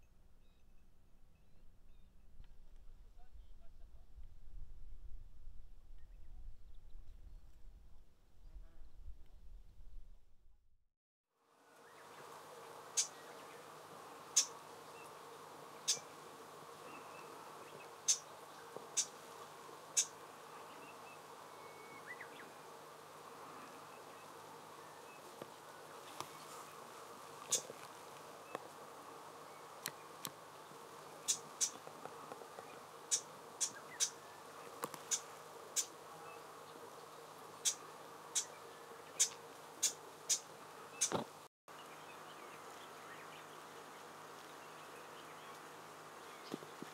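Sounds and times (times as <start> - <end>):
faint steady hum: 11.4 - 41.1
faint background drone: 11.4 - 41.2
bird call ticks: 27.5 - 27.7, 33.1 - 34.2, 34.8 - 35.9, 39.1 - 41.2.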